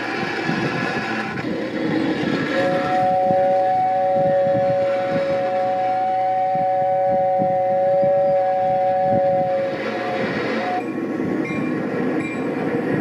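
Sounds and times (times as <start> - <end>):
train clicking and rumbling on track: 0.0 - 13.0
toy train horn two-note chord: 2.6 - 10.9.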